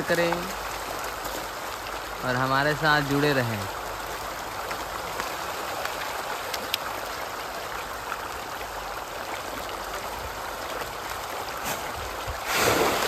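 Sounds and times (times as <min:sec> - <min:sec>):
fish splashing at water surface: 0:09.2 - 0:13.0.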